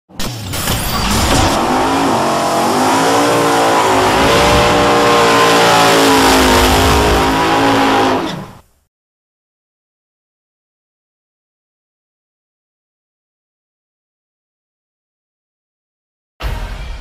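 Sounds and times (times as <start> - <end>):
race car engine revving: 1.2 - 8.6.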